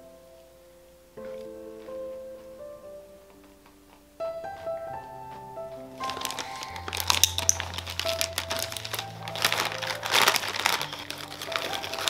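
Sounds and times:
soft background music: 0.0 - 12.0
plastic bag crinkling: 6.0 - 12.0.

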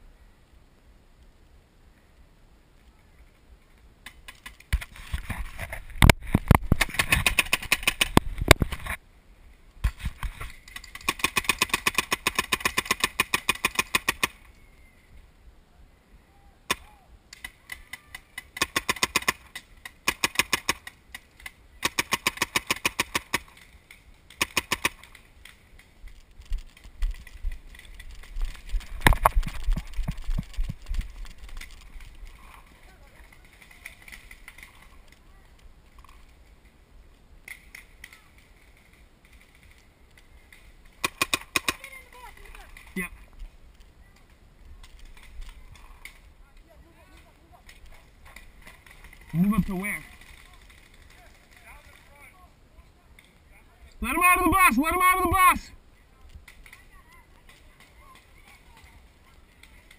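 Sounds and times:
paintball markers firing: 6.5 - 8.7, 10.6 - 14.4, 16.7 - 23.7, 24.3 - 25.6, 41.0 - 42.7.

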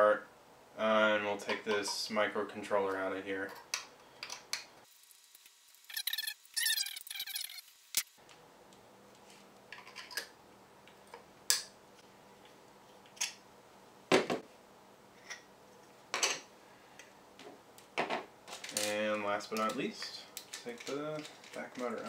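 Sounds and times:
plastic parts clicking: 18.5 - 22.0.

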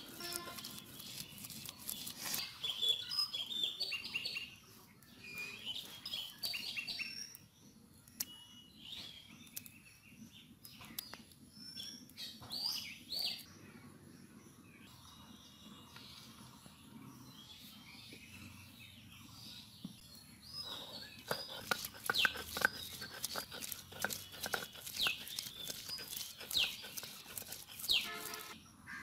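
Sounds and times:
stone roller grinding on stone: 0.0 - 2.5, 20.7 - 28.6
birds chirping: 0.0 - 29.0.

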